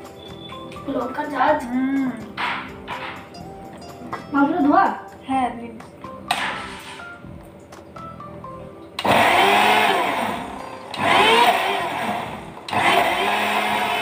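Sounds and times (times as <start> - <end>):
mixer grinder motor: 9.0 - 14.0.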